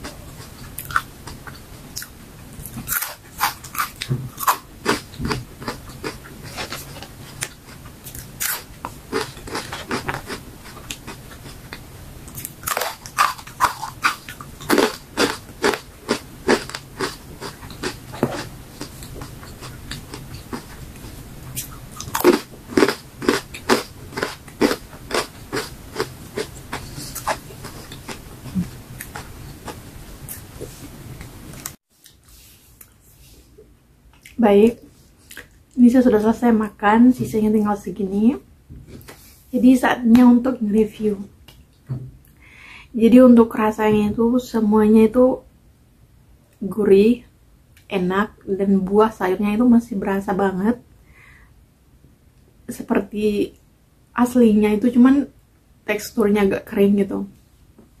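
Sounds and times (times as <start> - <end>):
crunching and chewing chips: 0.0 - 30.4.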